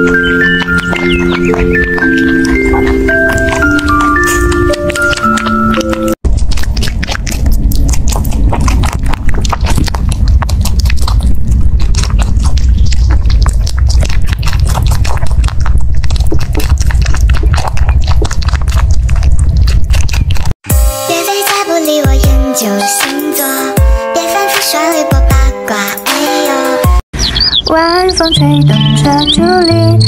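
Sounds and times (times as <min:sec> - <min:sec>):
rabbit chewing crunchily: 0:00.0 - 0:20.7
steady low rumble: 0:06.1 - 0:20.6.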